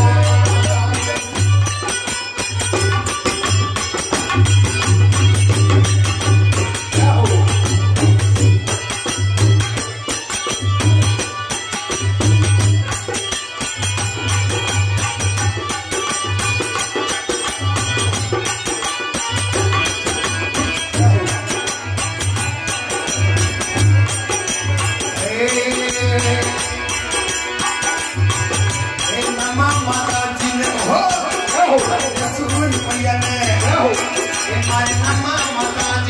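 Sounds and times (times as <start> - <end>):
person singing: 0.0 - 1.7, 6.8 - 8.1, 25.0 - 26.9
harmonium: 0.0 - 36.0
jingling percussion: 0.0 - 36.0.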